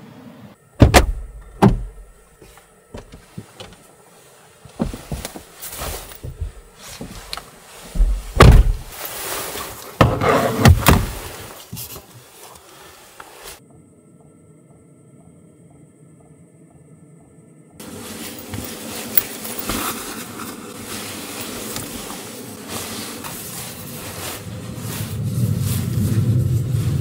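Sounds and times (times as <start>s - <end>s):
car door shutting: 0.8s - 2.2s, 8.0s - 8.9s, 10.0s - 11.2s
loud bumps inside vehicle: 0.8s - 2.2s, 2.9s - 3.8s, 4.7s - 7.3s, 8.0s - 9.0s, 10.0s - 11.3s
jacket and bedding rustling: 0.9s - 13.6s, 17.8s - 27.0s.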